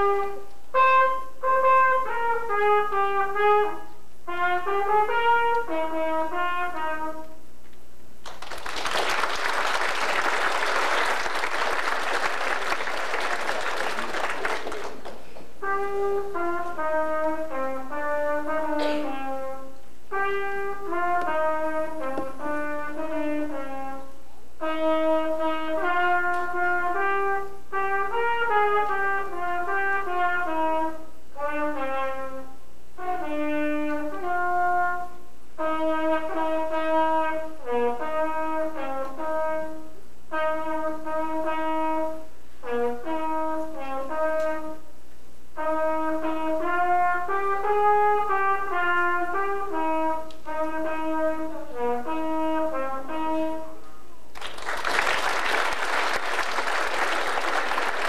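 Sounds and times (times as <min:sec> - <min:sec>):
trumpet melody: 0:00.0 - 0:07.5, 0:15.6 - 0:54.0.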